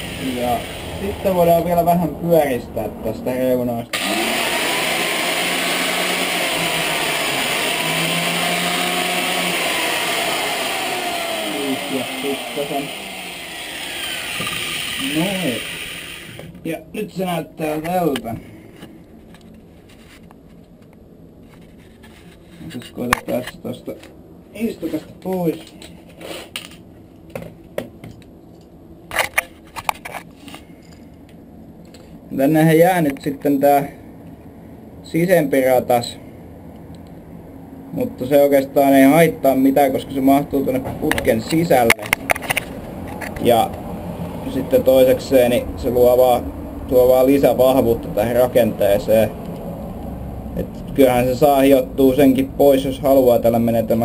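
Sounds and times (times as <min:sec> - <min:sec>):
angle grinder grinding steel: 0:00.0 - 0:01.1, 0:04.0 - 0:16.4.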